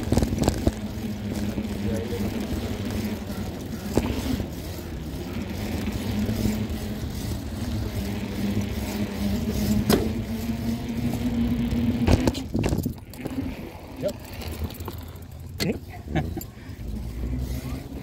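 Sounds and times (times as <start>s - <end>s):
small wheels rolling on concrete: 0.0s - 18.0s.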